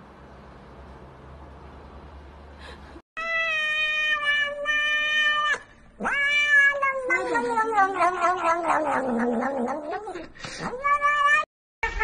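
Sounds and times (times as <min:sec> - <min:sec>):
cat meowing: 0:03.2 - 0:10.0, 0:10.7 - 0:12.0.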